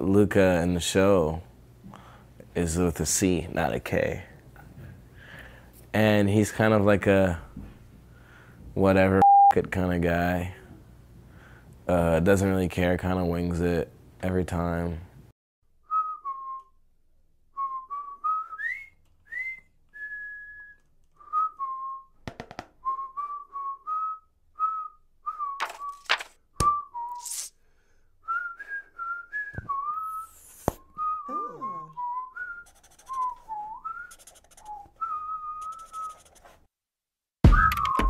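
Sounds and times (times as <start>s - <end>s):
person whistling a tune: 15.8s - 16.8s, 17.5s - 22.2s, 22.8s - 26.0s, 28.2s - 36.2s, 37.5s - 38.0s.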